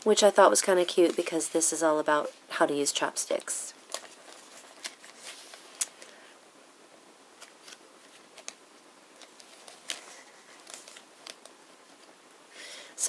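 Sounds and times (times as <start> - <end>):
paper pages rustling: 0.5 - 1.7, 3.3 - 6.2, 7.4 - 12.2.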